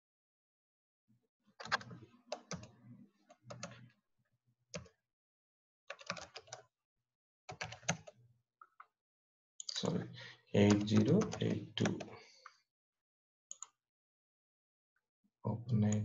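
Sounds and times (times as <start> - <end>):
keyboard typing: 1.6 - 2.7, 3.5 - 3.8, 5.9 - 6.6, 7.5 - 8.1, 10.6 - 12.2.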